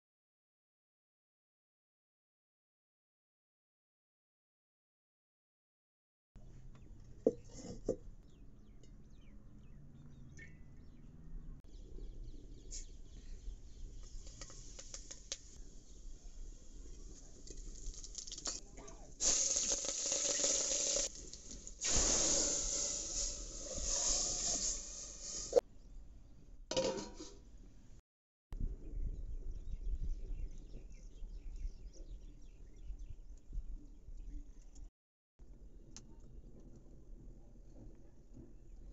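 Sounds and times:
loud sizzling in hot oil: 14.0s - 18.6s, 19.2s - 25.6s.

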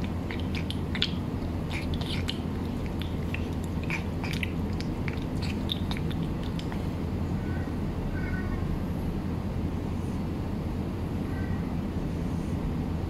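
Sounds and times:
cat chewing and lapping: 0.0s - 7.1s
steady low hum: 0.0s - 13.0s.

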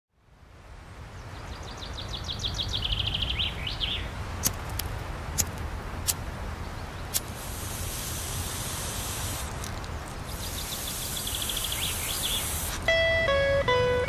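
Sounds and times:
bird singing a trill: 1.2s - 4.1s, 10.3s - 14.0s.

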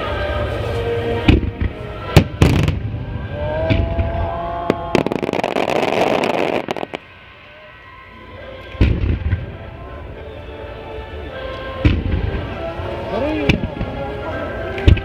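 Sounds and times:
firework bang: 4.7s - 7.1s
firework crackling: 4.7s - 7.4s
firework shell bursts: 5.0s - 7.1s.

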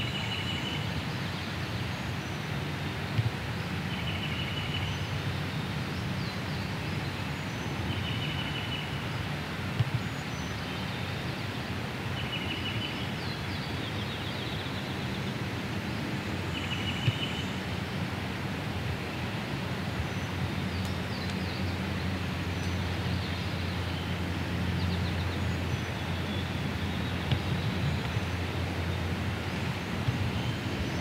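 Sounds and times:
songbird trill: 0.0s - 1.5s, 3.9s - 5.2s, 7.4s - 9.0s, 12.2s - 15.4s, 16.4s - 17.6s.

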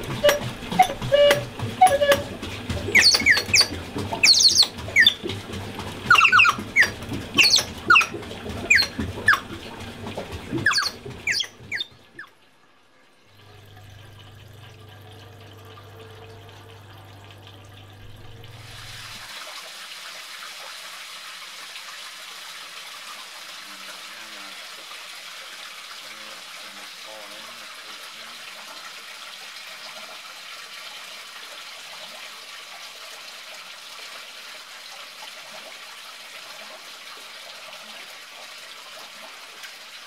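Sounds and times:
water gushing into bucket: 0.0s - 12.3s, 13.2s - 40.0s
birds chirping: 2.9s - 5.4s, 6.0s - 9.7s, 10.5s - 12.3s.

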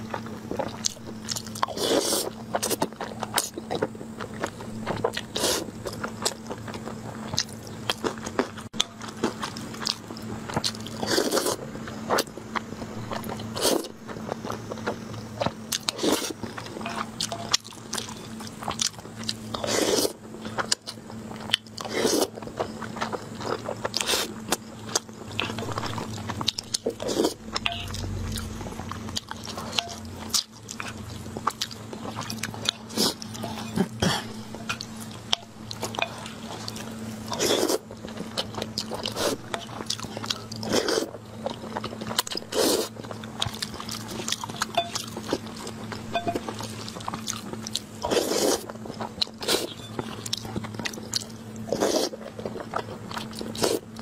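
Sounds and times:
steady low hum: 0.0s - 54.0s
wet chewing and mouth clicks: 0.0s - 54.0s
slurping noodles: 1.7s - 2.8s, 11.0s - 11.6s, 19.6s - 20.2s, 26.8s - 27.4s, 37.3s - 37.8s, 42.5s - 42.9s, 48.0s - 48.7s, 51.7s - 52.2s, 53.5s - 53.8s.

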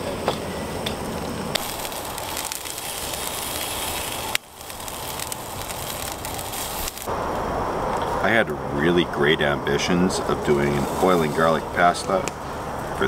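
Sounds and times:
sausages sizzling on a grill: 0.0s - 7.2s, 10.4s - 13.0s
campfire crackling: 0.0s - 13.0s.

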